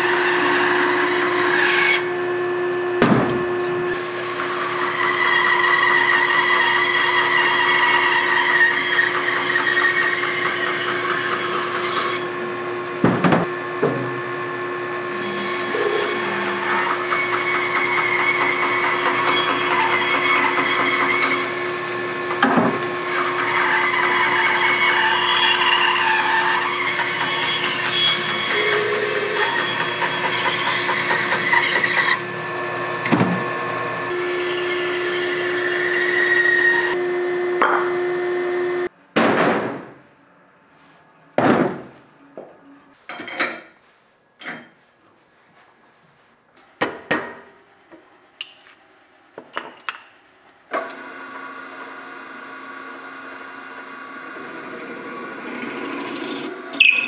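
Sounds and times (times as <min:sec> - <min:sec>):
power tool cutting wood: 0:00.0 - 0:38.9, 0:50.8 - 0:57.0.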